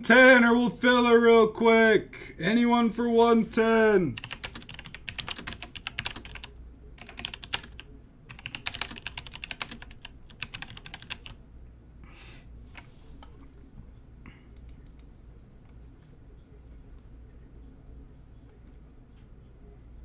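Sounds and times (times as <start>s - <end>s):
computer keyboard typing: 4.2s - 11.4s.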